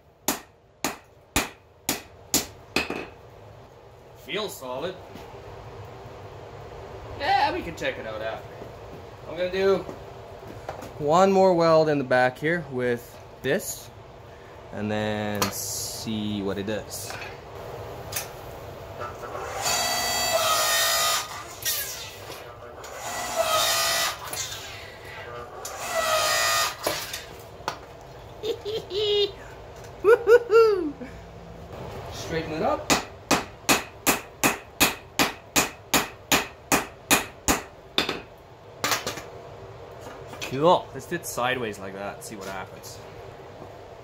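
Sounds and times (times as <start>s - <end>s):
hammer striking steel on anvil: 0.3s - 3.1s, 32.9s - 38.3s.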